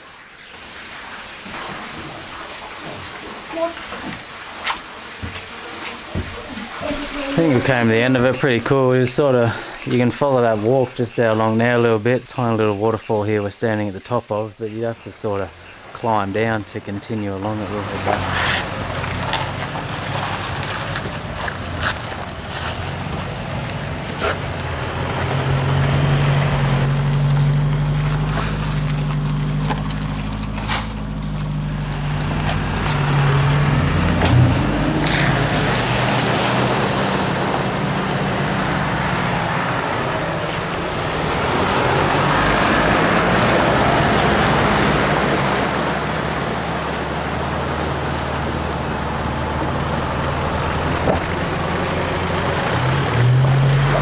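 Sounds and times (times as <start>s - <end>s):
water splashing: 0.0s - 54.0s
vehicle engine running at low revs: 16.7s - 54.0s.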